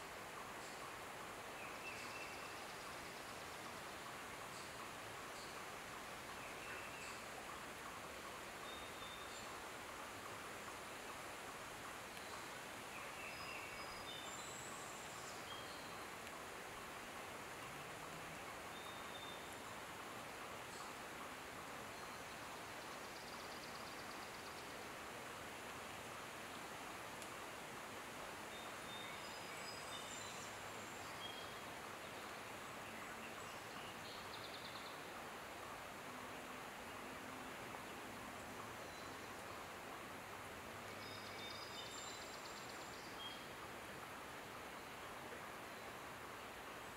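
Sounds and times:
outdoor background hiss: 0.0s - 46.9s
faint bird chirps: 12.0s - 16.9s, 20.6s - 24.8s, 28.5s - 35.2s, 37.8s - 39.8s.

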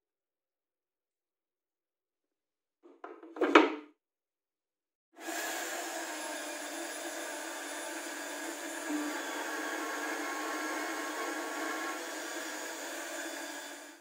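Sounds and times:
wooden knock and rattle: 2.9s - 3.9s
electric drill running: 5.2s - 14.0s.

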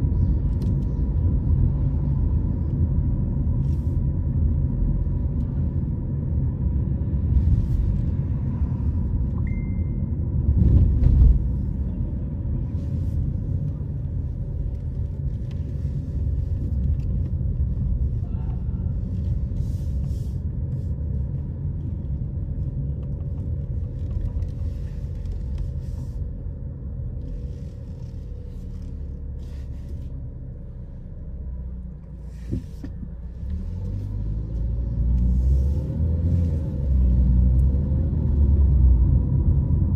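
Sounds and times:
car road and engine rumble: 0.0s - 39.9s
brief high beep: 9.4s - 10.1s.

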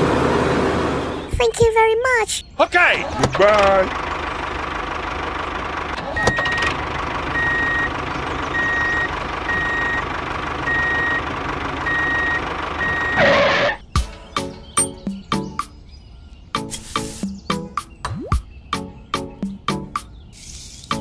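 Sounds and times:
engine drone: 0.0s - 1.3s, 3.1s - 13.9s
reversing alarm beeping: 6.2s - 6.7s, 7.3s - 10.0s, 10.6s - 11.2s, 11.8s - 13.8s.

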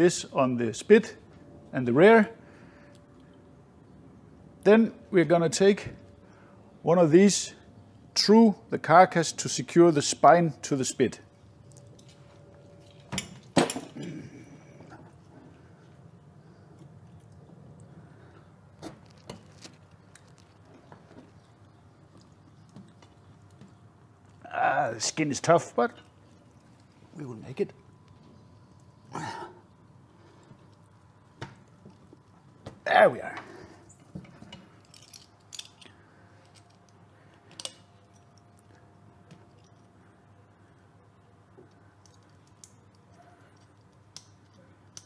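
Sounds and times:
low room hum: 0.0s - 45.0s
skewer handling noises: 16.6s - 24.0s.

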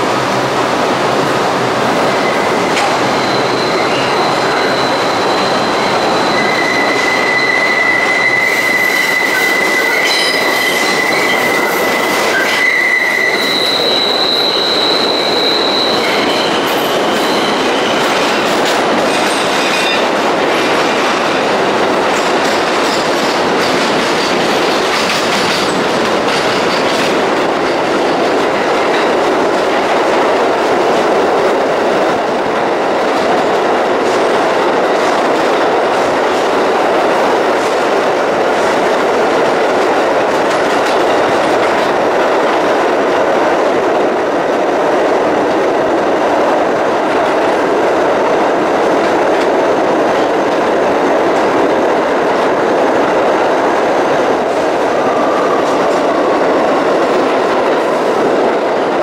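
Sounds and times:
subway train rumbling: 0.0s - 59.0s
high wheel squeal: 2.1s - 18.2s.

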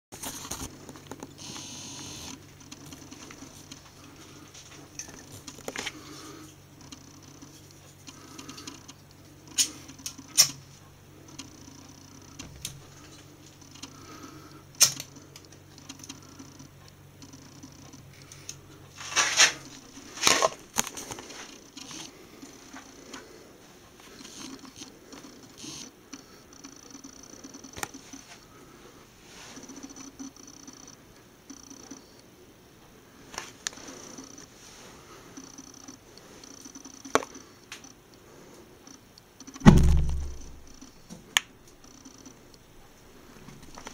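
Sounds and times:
steady low hum: 0.2s - 43.9s
handling noise: 39.6s - 40.7s.

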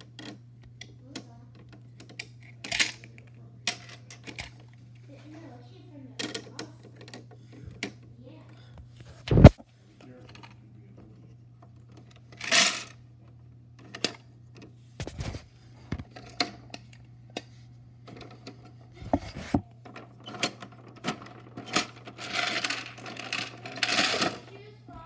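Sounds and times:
plastic toy clicks and clatters: 6.2s - 8.0s, 19.9s - 24.5s.

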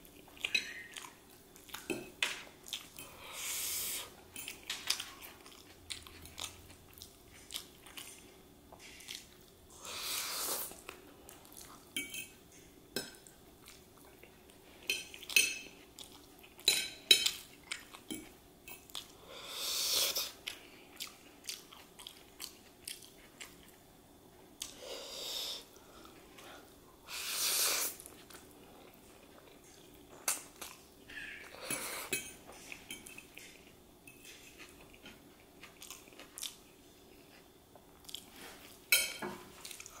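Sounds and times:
chewing: 4.4s - 9.5s, 13.6s - 19.2s, 20.3s - 23.8s, 28.0s - 38.9s, 39.5s - 40.0s.

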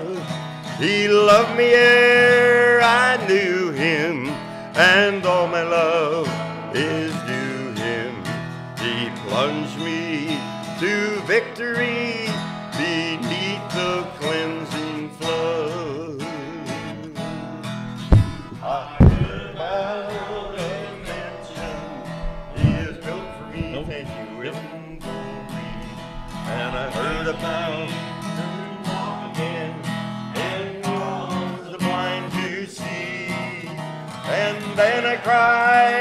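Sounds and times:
acoustic guitar strumming: 0.0s - 36.0s
heavy low thumps: 17.9s - 19.8s, 20.4s - 24.2s, 25.0s - 27.7s.

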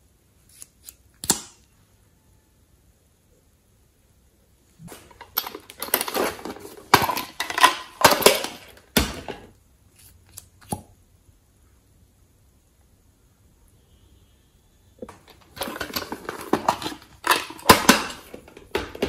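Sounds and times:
plastic toy case rattling: 5.0s - 9.5s, 15.1s - 19.0s.

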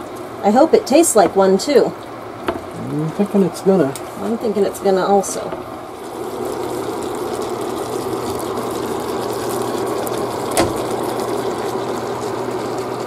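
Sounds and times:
food sizzling in a skillet: 3.1s - 13.0s.

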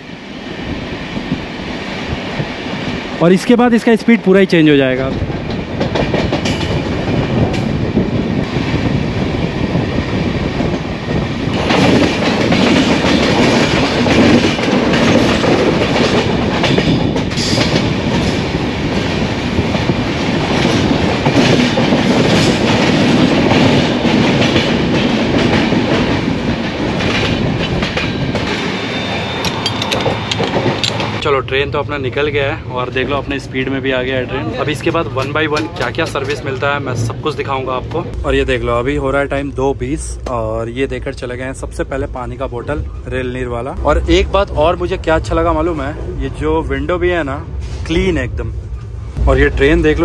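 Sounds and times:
train rumble and hiss: 0.0s - 50.0s
train wheels clickety-clack: 4.9s - 31.2s, 34.7s - 38.1s.

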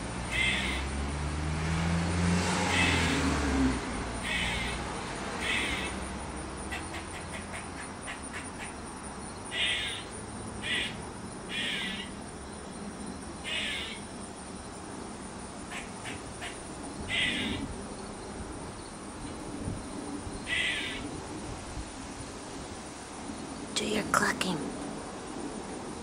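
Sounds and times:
squirrel alarm calls: 0.0s - 1.0s, 2.7s - 3.1s, 4.2s - 4.8s, 5.4s - 12.2s, 13.4s - 14.1s, 15.7s - 17.8s, 20.4s - 21.1s
squirrel clucking clicks: 6.7s - 8.8s.

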